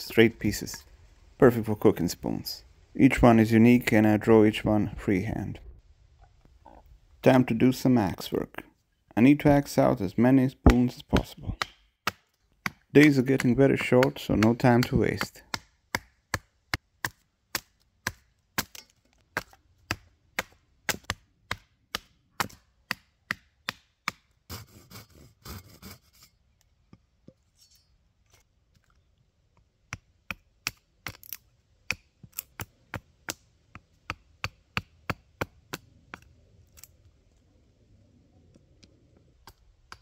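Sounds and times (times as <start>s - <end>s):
axe chopping wood: 10.7s - 24.3s, 34.0s - 35.8s.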